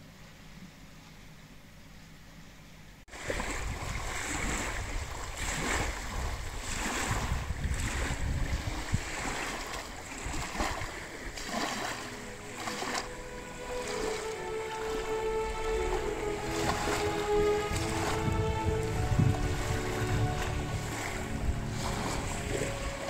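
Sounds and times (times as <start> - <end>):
wind rumbling on microphone: 3.1 - 11.9, 15.5 - 23.0
paddle splashing in water: 3.1 - 23.0.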